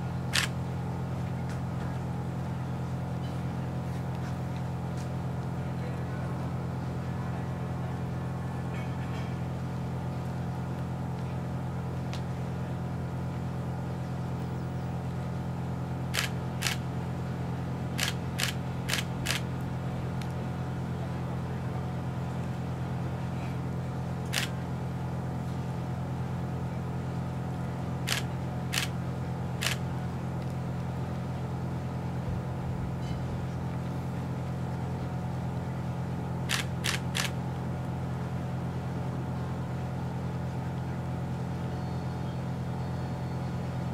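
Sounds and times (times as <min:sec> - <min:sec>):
low mechanical hum: 0:00.0 - 0:43.9
sharp clicks: 0:00.3 - 0:00.5, 0:16.1 - 0:16.8, 0:18.0 - 0:19.4, 0:28.1 - 0:28.9, 0:29.6 - 0:29.8, 0:36.5 - 0:37.4.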